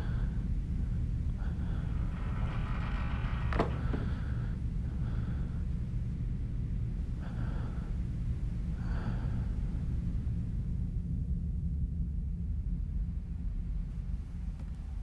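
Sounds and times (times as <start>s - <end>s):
steady low rumble: 0.0s - 15.0s
person breathing heavily: 7.0s - 10.2s.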